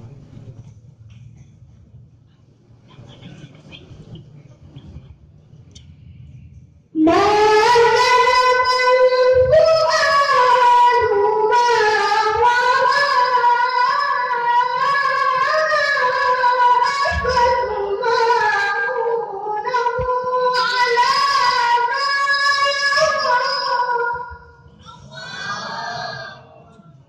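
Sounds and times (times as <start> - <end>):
boy reciting melodically: 7.0 - 26.4.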